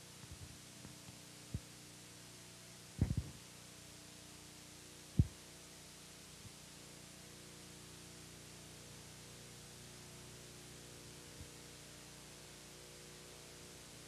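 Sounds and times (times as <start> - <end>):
faint steady hum: 0.0 - 14.0
soft low thumps: 3.0 - 3.3.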